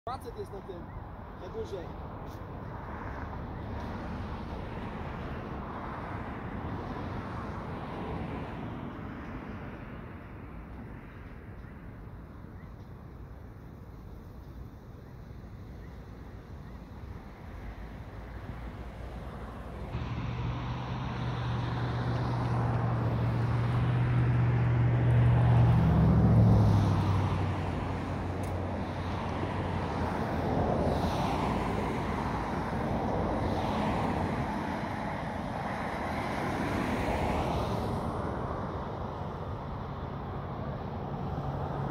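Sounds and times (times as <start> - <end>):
cars swishing past: 1.4 - 12.0, 15.8 - 41.9
vehicle engine passing: 18.5 - 38.2.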